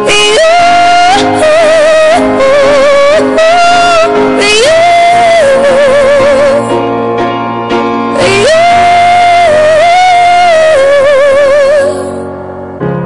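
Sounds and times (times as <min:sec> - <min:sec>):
instrumental backing: 0:00.0 - 0:13.0.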